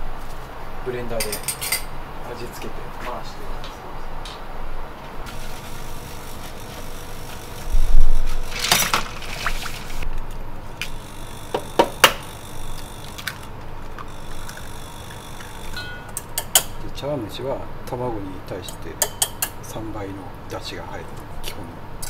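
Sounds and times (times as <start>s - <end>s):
water and ice shifting in bowl: 8.3s - 10.1s.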